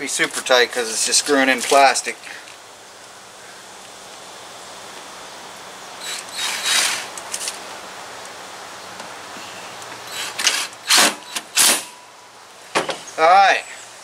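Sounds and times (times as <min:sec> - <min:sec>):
cordless drill driving screws: 0:06.0 - 0:07.6, 0:10.1 - 0:11.9.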